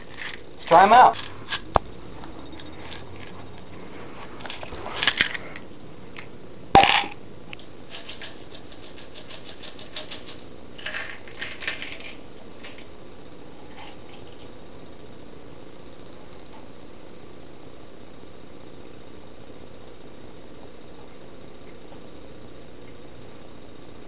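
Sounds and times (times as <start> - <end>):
pills rattling in plastic bottle: 0.0 - 1.7, 4.5 - 5.4, 7.9 - 12.9.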